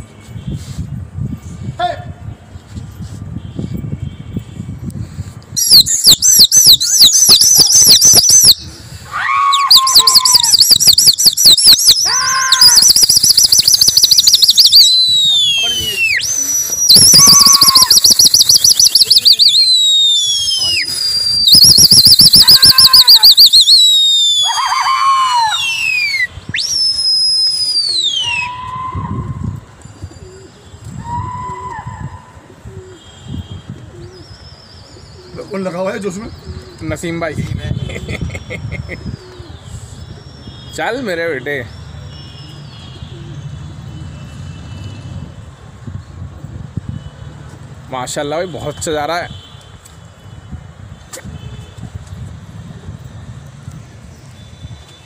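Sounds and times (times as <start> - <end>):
shrill warbling whistle: 5.6 - 8.6, 9.5 - 24.7, 25.4 - 29.2
lower drooping whistled calls: 5.6 - 8.8, 9.6 - 24.6, 25.5 - 29.0.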